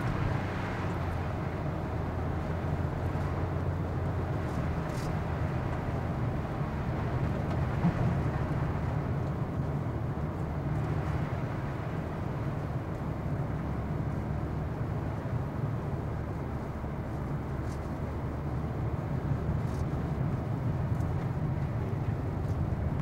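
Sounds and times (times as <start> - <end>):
car road and engine noise: 0.0 - 23.0.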